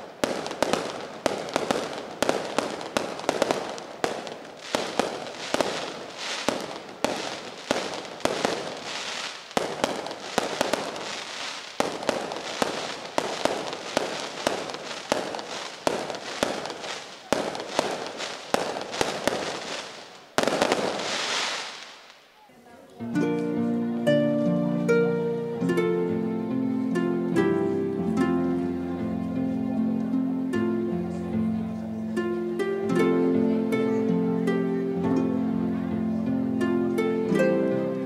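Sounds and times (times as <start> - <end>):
fireworks bursting with echo: 0.0 - 23.0.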